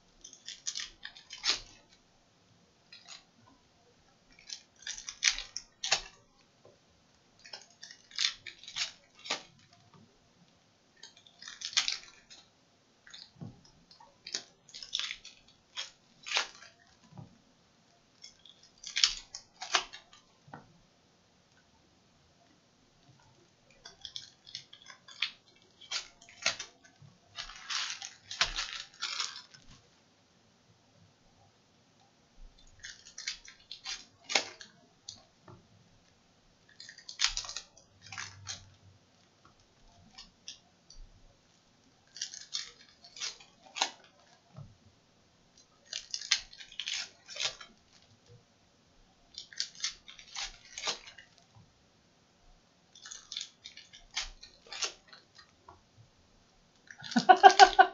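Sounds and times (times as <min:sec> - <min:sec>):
card pack wrappers crackling: 0:23.9 - 0:29.7, 0:56.9 - 0:57.9.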